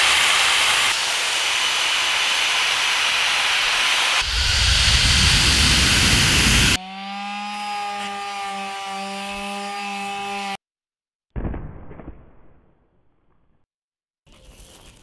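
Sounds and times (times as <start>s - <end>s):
power tool motor whining: 0.0s - 10.6s.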